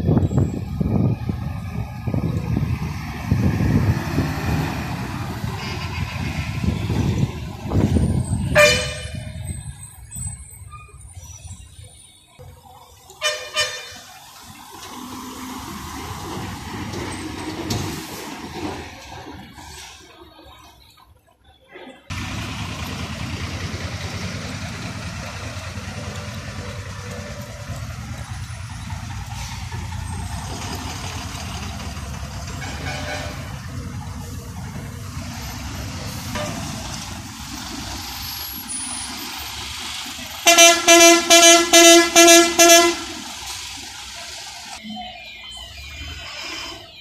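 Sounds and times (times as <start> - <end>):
bus engines rumbling: 0.0 - 47.0
bus horn short toots: 8.5 - 9.2, 13.2 - 14.0, 32.6 - 33.5, 36.4 - 36.7, 40.5 - 43.2.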